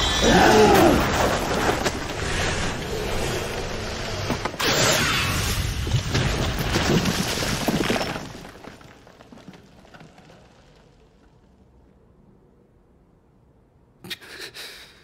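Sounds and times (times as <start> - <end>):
crash with shattering debris: 0.0 - 11.3.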